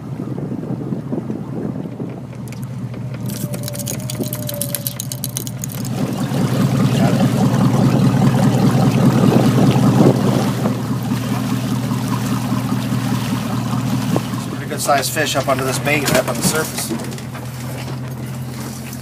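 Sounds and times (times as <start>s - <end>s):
boat motor running: 0.0s - 19.0s
water washing along hull: 0.0s - 19.0s
fishing reel ticking: 2.4s - 6.0s.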